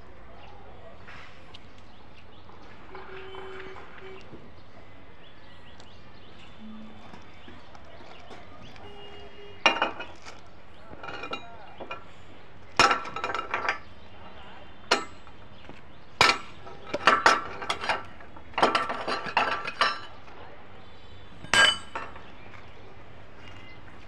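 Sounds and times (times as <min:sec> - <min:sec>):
steel tools striking a rail: 0:12.8 - 0:13.8, 0:14.9 - 0:15.3, 0:16.2 - 0:20.1, 0:21.4 - 0:22.2.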